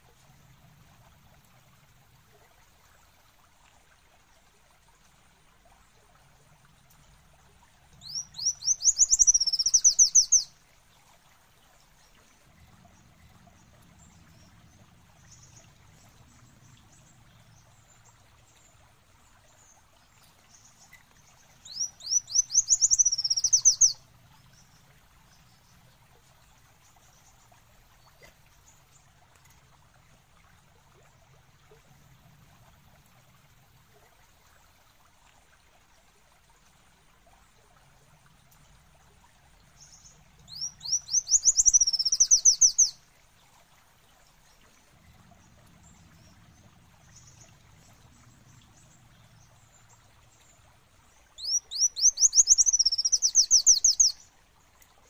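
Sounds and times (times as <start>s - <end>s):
bird trilling song: 8.0s - 10.5s, 21.6s - 24.0s, 40.5s - 43.0s, 51.4s - 54.2s.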